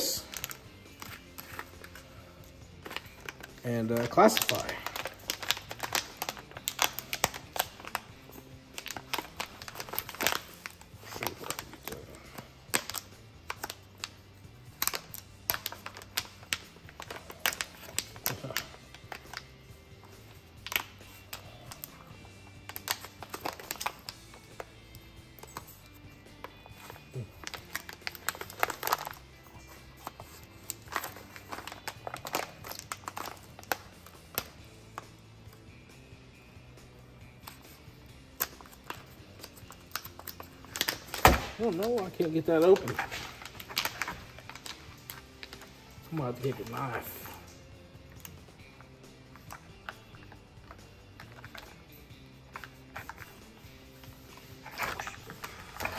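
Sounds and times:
background music: 0.0 - 55.9
plastic bag crackling: 2.8 - 14.1, 14.8 - 24.8, 26.7 - 34.5, 38.4 - 47.6, 52.6 - 55.9.

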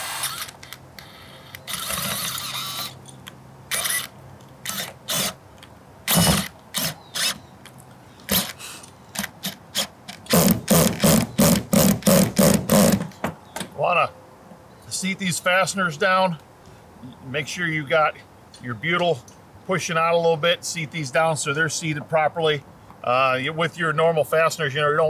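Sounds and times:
screw gun driving screws into metal: 0.0 - 0.8.

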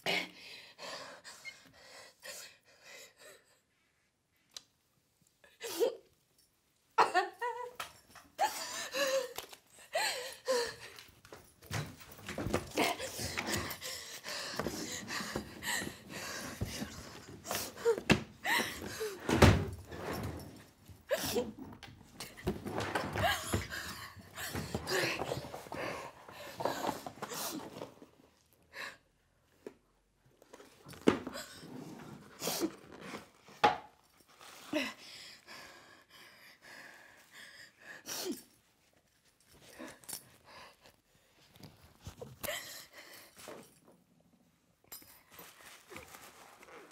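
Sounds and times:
rustling: 45.1 - 46.9.

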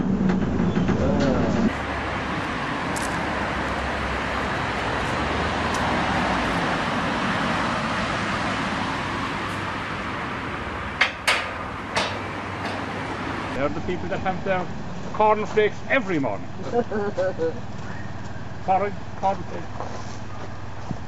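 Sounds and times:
diesel locomotive engine running: 0.0 - 21.0
sharp knocks: 11.0 - 13.0.

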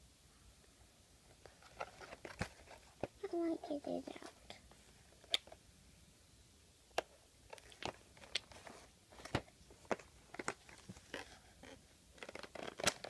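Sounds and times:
plastic toy package crackling: 7.5 - 13.0.

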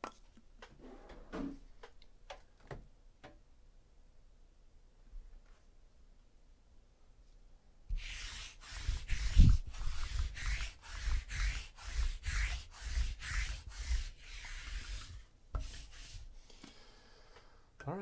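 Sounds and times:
lint roller rubbing on table: 7.9 - 16.4.

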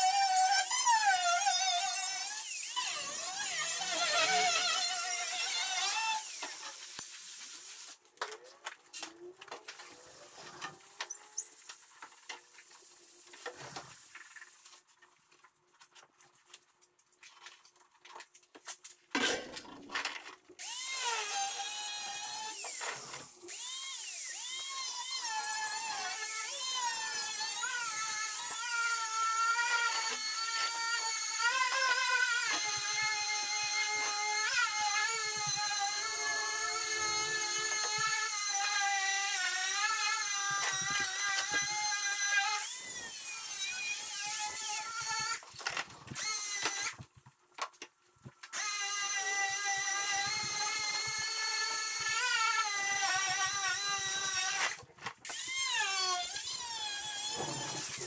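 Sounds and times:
angle grinder cutting metal: 0.0 - 7.0, 48.6 - 58.0.

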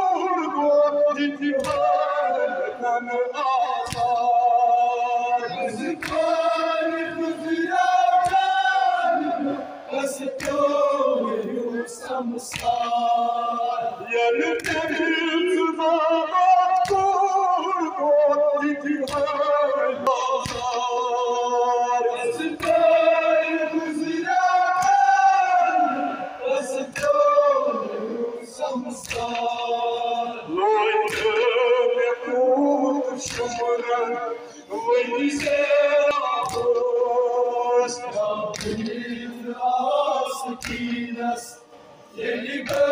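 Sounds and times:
men singing mournful lament: 0.0 - 42.9
hands slapping chests: 1.6 - 1.9, 3.8 - 4.2, 6.0 - 6.4, 10.4 - 10.8, 12.4 - 13.0, 20.4 - 20.8, 29.0 - 29.6, 31.1 - 31.4, 36.4 - 36.8, 38.5 - 39.0, 40.6 - 41.0, 42.6 - 42.9.

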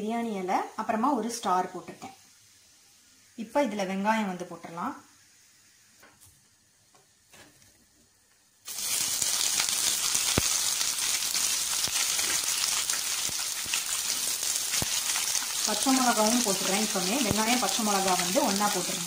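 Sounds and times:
onions sizzling in hot oil: 0.2 - 4.0, 8.6 - 19.0.

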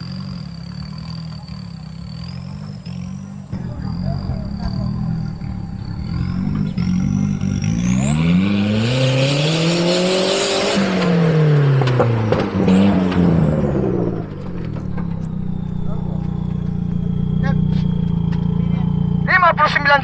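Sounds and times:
engine revving: 0.0 - 20.0
thin high whine: 0.9 - 8.8.

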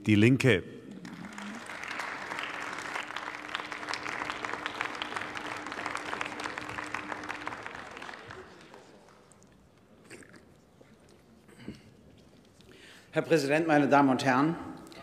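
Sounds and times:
crowd applauding: 0.9 - 9.5.

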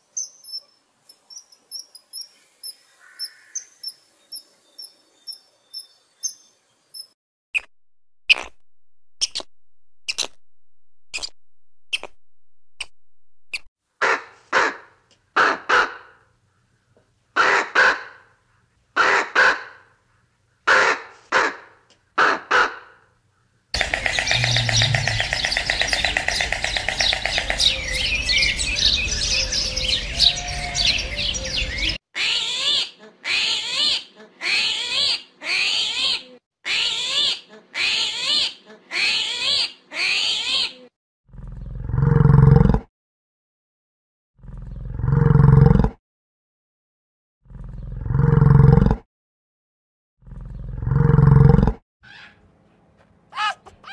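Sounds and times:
chorus of bird chirps: 0.2 - 7.7, 23.8 - 32.0
loud bird calls: 2.2 - 4.4, 23.8 - 32.9, 53.4 - 53.9
bird clicks: 23.8 - 27.8
rhythmic bird chirping: 23.8 - 32.0.

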